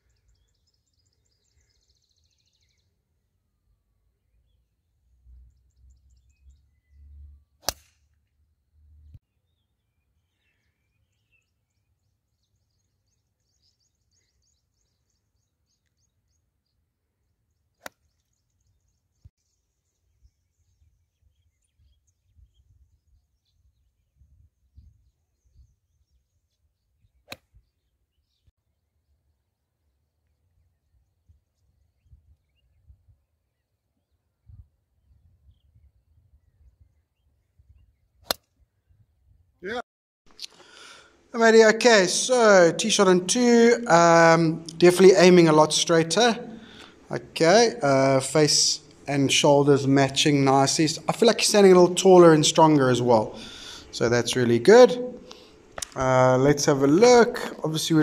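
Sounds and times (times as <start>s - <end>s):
golf club striking ball: 7.6s - 8.0s.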